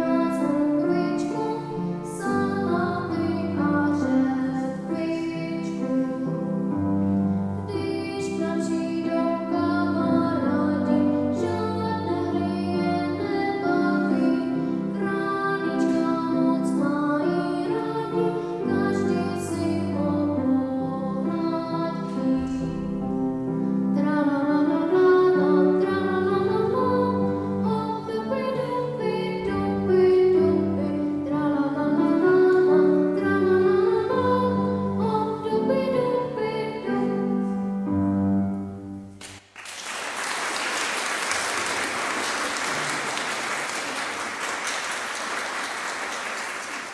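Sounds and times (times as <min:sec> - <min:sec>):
solo classical singing: 0:00.0 - 0:06.8, 0:07.5 - 0:37.6
grand piano: 0:00.0 - 0:46.9
audience applauding: 0:39.2 - 0:46.9.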